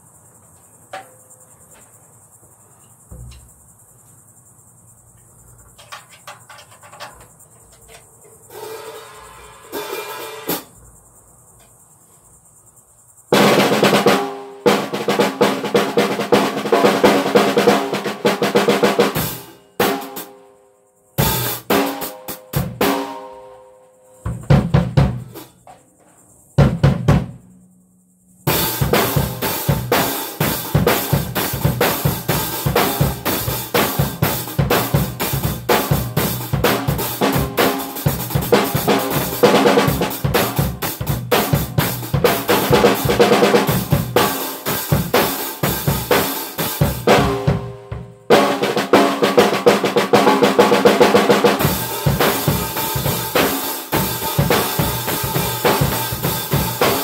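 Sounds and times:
drum kit playing: 0:13.4 - 0:20.3, 0:21.2 - 0:23.3, 0:24.3 - 0:25.5, 0:26.6 - 0:27.5, 0:28.4 - 0:57.0.

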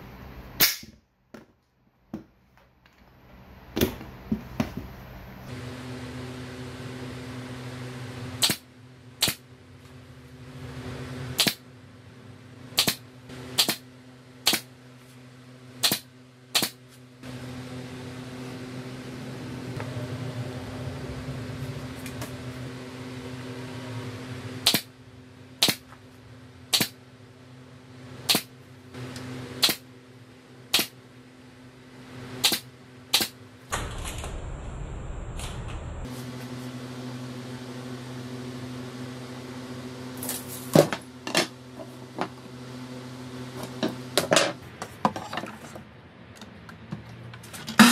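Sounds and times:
nail gun shots into wood: 0:00.6 - 0:01.0, 0:08.4 - 0:08.6, 0:11.4 - 0:11.6, 0:12.8 - 0:13.0, 0:13.6 - 0:13.8, 0:14.4 - 0:14.7, 0:15.8 - 0:16.8, 0:24.6 - 0:24.9, 0:25.6 - 0:25.8, 0:26.7 - 0:27.0, 0:28.3 - 0:28.5, 0:29.6 - 0:29.8, 0:30.7 - 0:30.9, 0:32.4 - 0:33.8
steady hum: 0:02.6 - 0:46.4.

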